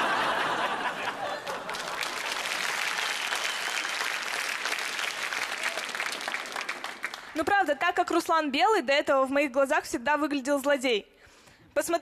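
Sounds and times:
studio audience applauding: 0:00.9 - 0:07.8.

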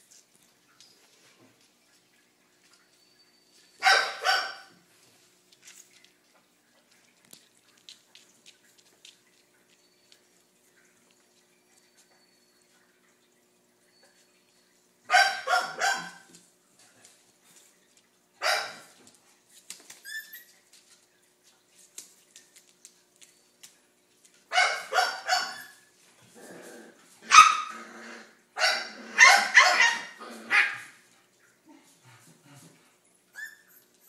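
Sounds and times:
dog barking high-pitched: 0:03.8 - 0:04.8, 0:15.1 - 0:16.3, 0:18.4 - 0:18.9, 0:24.5 - 0:25.8, 0:27.2 - 0:27.8, 0:28.6 - 0:30.9.

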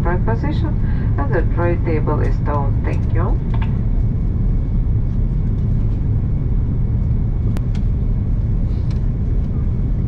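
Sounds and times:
airliner engines rumbling: 0:00.0 - 0:10.0.

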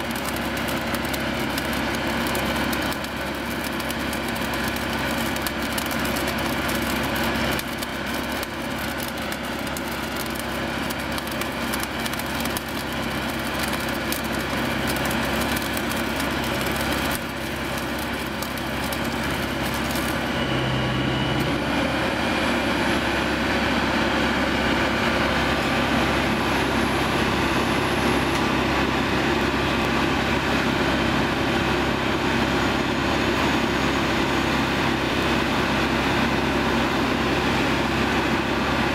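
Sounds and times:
crackle of flashing weld: 0:00.0 - 0:30.0
machine engine running: 0:00.0 - 0:38.9
steady mechanical hum: 0:00.0 - 0:38.9.

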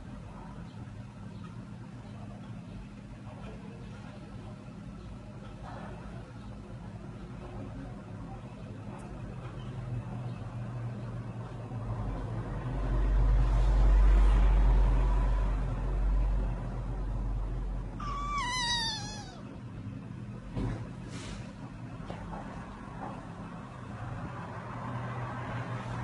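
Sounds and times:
kitten meowing: 0:18.0 - 0:19.5.

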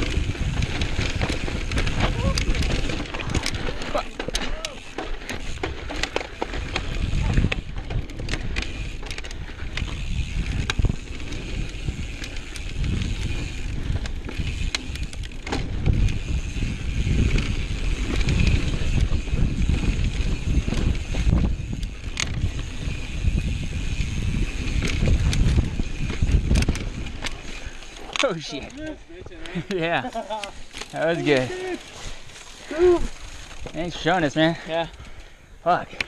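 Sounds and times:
wind buffeting microphone: 0:00.0 - 0:04.1, 0:05.2 - 0:27.9
tyres running over dirt: 0:00.0 - 0:35.3
bike clicks and rattles: 0:00.0 - 0:36.0.

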